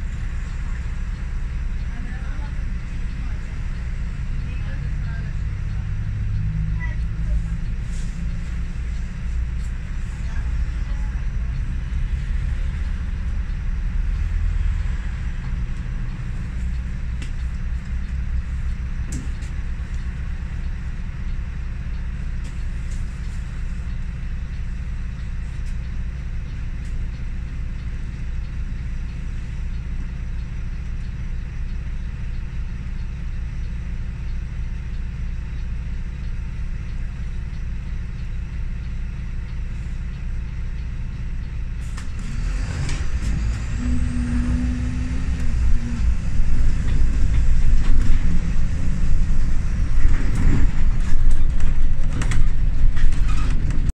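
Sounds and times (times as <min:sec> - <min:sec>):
bus engine idling: 0:00.0 - 0:53.9.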